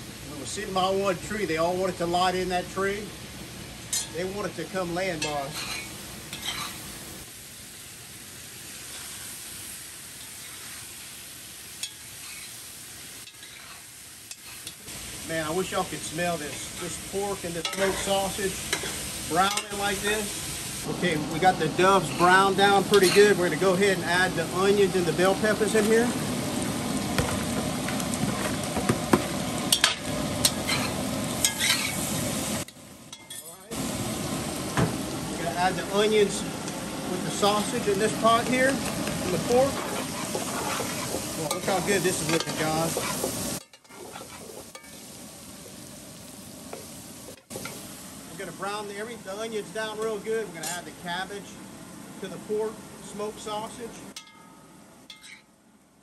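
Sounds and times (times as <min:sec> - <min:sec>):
meat sizzling in a pot: 0:00.0 - 0:54.2
metal spoon scraping a pot: 0:39.5 - 0:45.0.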